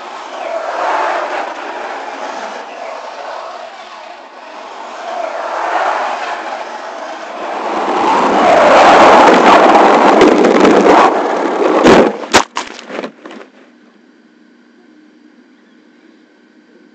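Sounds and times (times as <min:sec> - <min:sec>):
rc truck motor and tyre noise: 0:00.0 - 0:12.3
faint steady hum: 0:11.3 - 0:16.9.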